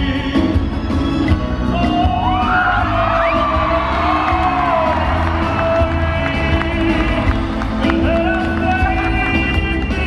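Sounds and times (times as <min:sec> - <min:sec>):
live pop-opera band and orchestra: 0:00.0 - 0:10.0
audience whooping and cheering: 0:01.9 - 0:09.4.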